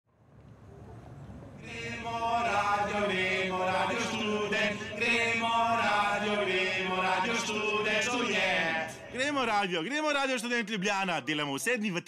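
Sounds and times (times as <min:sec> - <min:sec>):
chanted vocals in held notes: 0:01.6 - 0:09.3.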